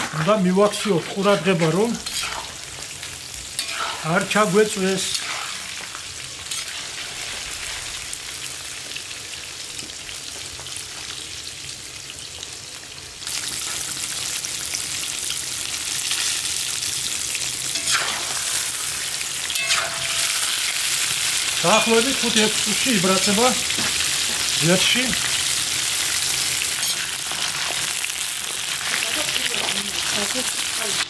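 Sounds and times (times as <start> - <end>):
food sizzling in a pan: 0.0 - 31.0
stirring clinks and scrapes: 19.5 - 20.5.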